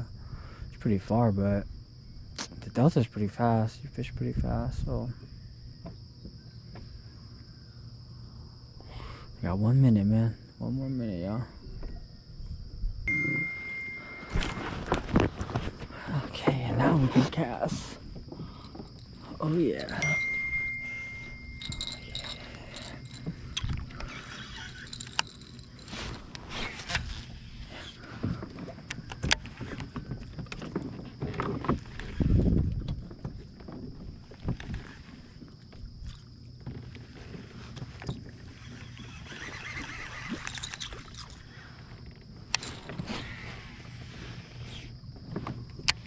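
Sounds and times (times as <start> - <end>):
steady low hum: 3.2 - 39.3
thin high whine: 13.1 - 15.9, 19.2 - 28.0
fishing tackle clicking and rattling: 18.5 - 27.4, 40.3 - 41.6, 42.5 - 43.1.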